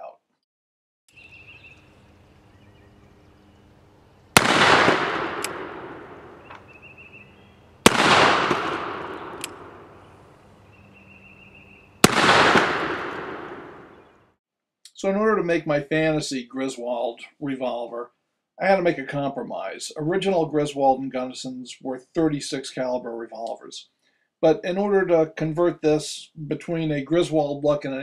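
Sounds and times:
revolver gunshots: 4.3s - 6.6s, 7.8s - 10.0s, 12.0s - 14.2s
sharp click: 5.4s - 5.6s, 9.3s - 9.6s.

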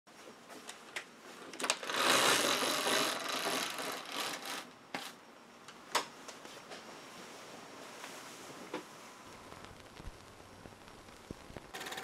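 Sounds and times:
roller blind rattling whir: 1.6s - 5.2s.

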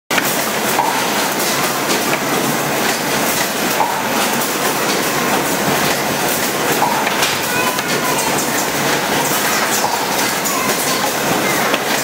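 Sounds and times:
machine clattering clicks: 0.1s - 12.0s.

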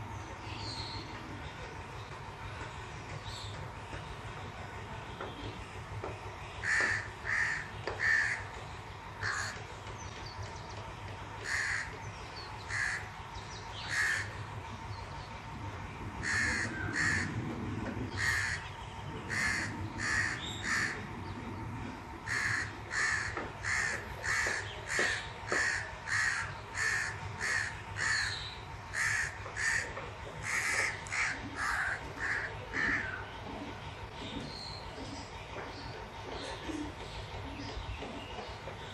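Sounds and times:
crow cawing: 6.6s - 8.5s, 9.2s - 9.6s, 11.4s - 12.0s, 12.7s - 13.1s, 13.8s - 14.3s, 16.2s - 17.4s, 18.2s - 18.7s, 19.3s - 21.0s, 22.3s - 28.3s, 28.9s - 33.2s.

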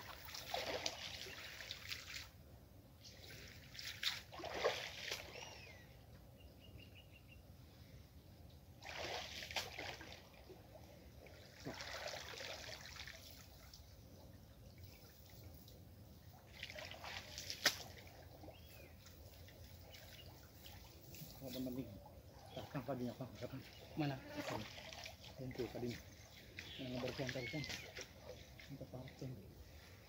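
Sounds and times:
water splashing off a net: 0.0s - 2.4s, 3.3s - 5.6s, 8.8s - 10.5s, 11.2s - 13.8s, 16.4s - 18.6s, 24.4s - 25.9s.

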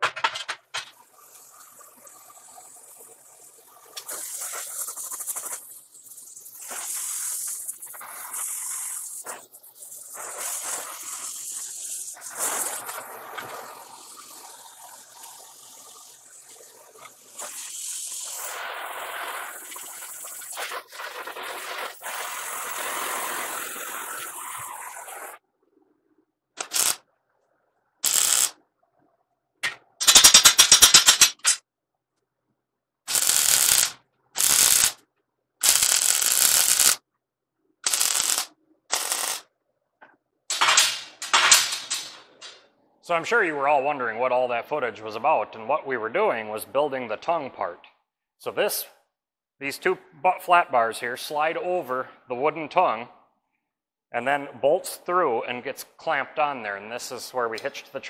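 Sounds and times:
cutting torch hissing: 3.6s - 25.4s, 26.6s - 27.0s, 28.0s - 28.5s, 33.1s - 35.0s, 35.6s - 37.0s, 37.8s - 39.4s
welding crackling bursts: 4.0s - 13.5s, 17.1s - 25.4s, 26.6s - 27.0s, 28.0s - 28.6s, 30.0s - 31.6s, 33.1s - 35.0s, 35.6s - 37.0s, 37.8s - 39.5s, 40.5s - 42.6s.

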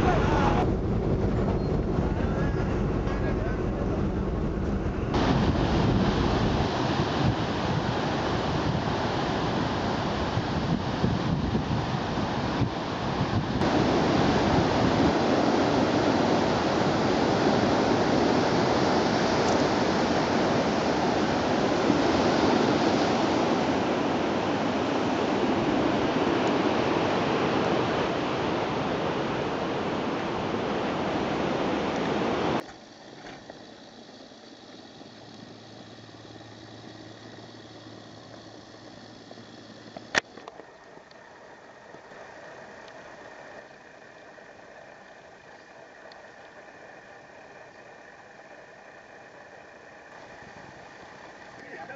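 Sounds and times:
sea surf: 0.0s - 1.4s, 2.0s - 39.6s
wind rushing: 0.0s - 31.6s
low hum: 0.0s - 51.9s.

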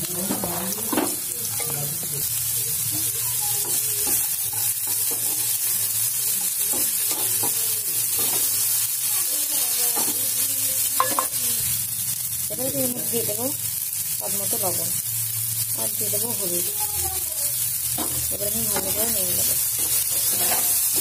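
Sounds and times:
potatoes sizzling in oil: 0.0s - 21.0s
wooden spatula scraping pan: 19.8s - 21.0s.

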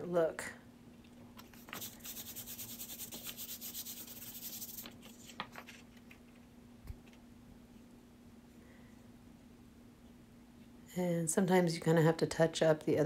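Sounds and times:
paintbrush scrubbing on paper: 1.6s - 5.0s.

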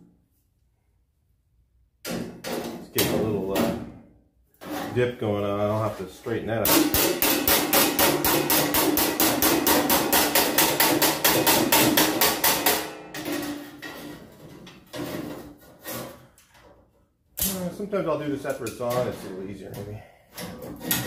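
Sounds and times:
hammer striking steel panel: 6.6s - 15.4s.

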